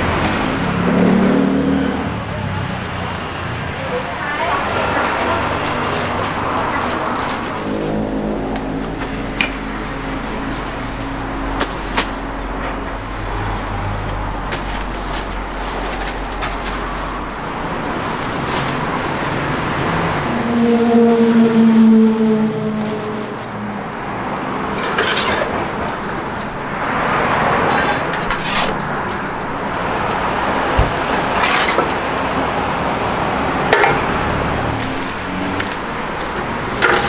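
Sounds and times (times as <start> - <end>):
steady pitched vehicle sound: 0.0 - 14.4, 19.2 - 24.8
motor vehicle humming: 0.0 - 37.0
road traffic: 0.0 - 37.0.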